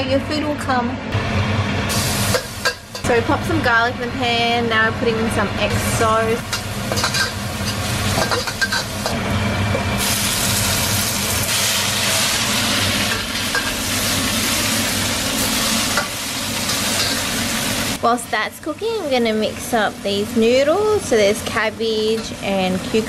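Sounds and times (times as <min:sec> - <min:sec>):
garlic sizzling in hot oil: 0:01.5 - 0:23.0
metal spatula scraping a wok: 0:06.4 - 0:09.2, 0:15.4 - 0:17.4.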